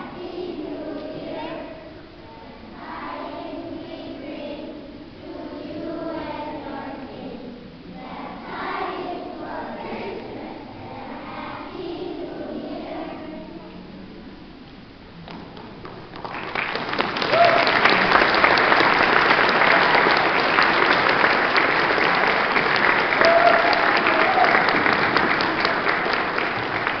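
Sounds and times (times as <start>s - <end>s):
audience applause: 16.1s - 27.0s.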